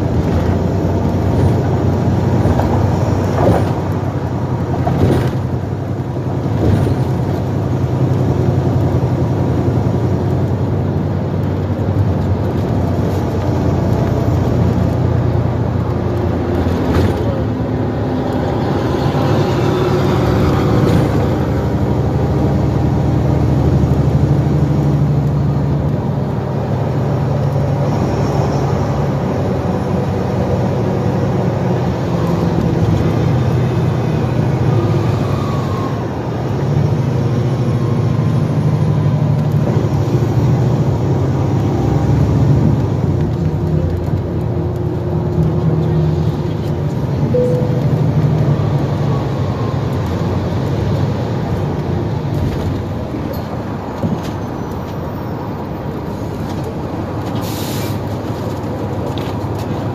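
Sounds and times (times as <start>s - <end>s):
drivetrain whine: 0.0s - 57.4s
bus diesel engine droning: 0.0s - 59.9s
short high tone: 47.3s - 48.2s.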